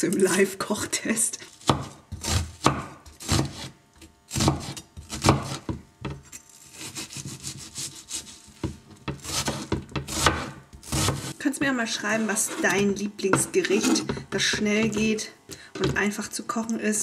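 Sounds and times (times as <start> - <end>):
knife slicing onion: 1.4 - 5.8, 6.6 - 11.4, 12.1 - 16.1.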